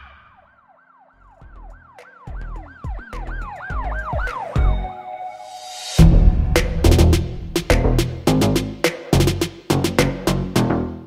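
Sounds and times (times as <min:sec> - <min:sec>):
wailing siren: 0:00.0 - 0:05.4
deep bass hits: 0:06.0 - 0:09.9.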